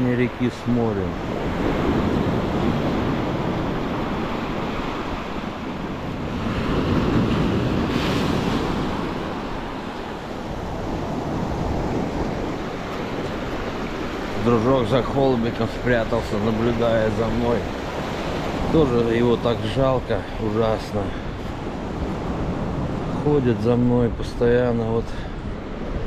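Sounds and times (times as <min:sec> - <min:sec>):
sea waves washing ashore: 0:00.0 - 0:26.0
wind rumble on microphone: 0:00.0 - 0:26.0.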